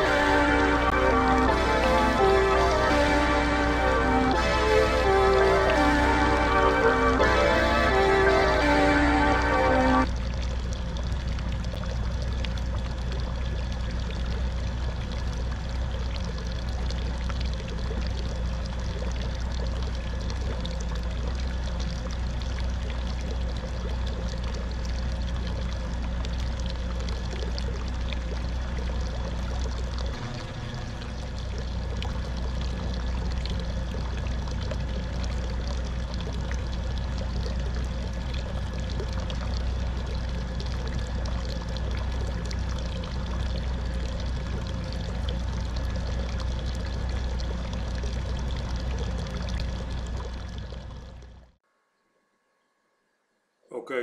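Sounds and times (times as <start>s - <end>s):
low rumble: 0.0s - 51.6s.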